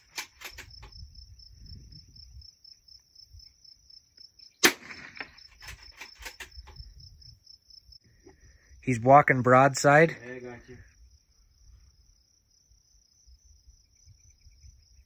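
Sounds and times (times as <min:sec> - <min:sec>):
insects chirping in a trill: 0:00.0 - 0:15.0
rifle shot: 0:04.6 - 0:06.5.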